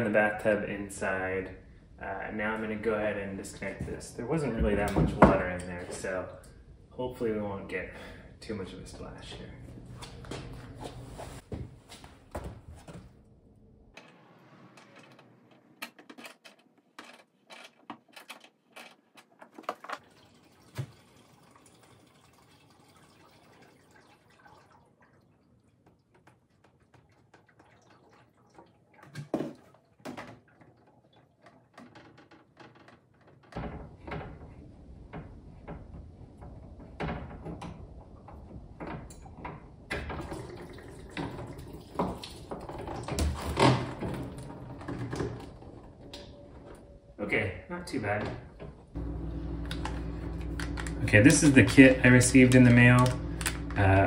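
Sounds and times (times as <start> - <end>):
water trickling into plastic tub: 18.7 - 33.5, 39.2 - 46.1.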